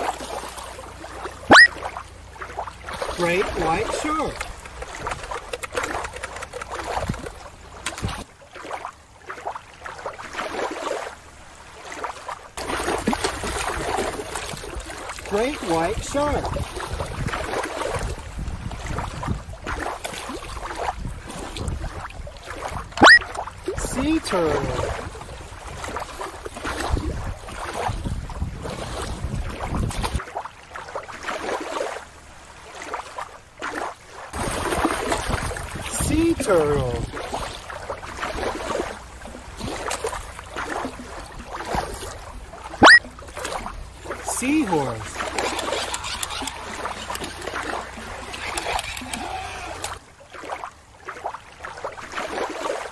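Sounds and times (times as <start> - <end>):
water gently bubbling: 0.0 - 52.9
water lapping on rocky shore: 0.0 - 52.9
wind buffeting microphone: 15.9 - 24.0, 24.6 - 30.2.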